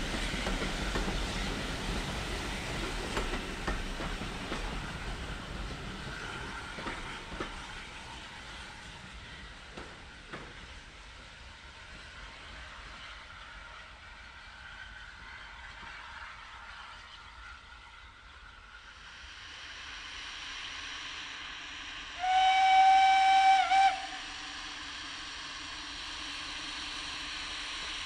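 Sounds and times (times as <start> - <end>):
approaching locomotive noise: 0.0 - 28.0
steam locomotive whistle: 22.1 - 24.7.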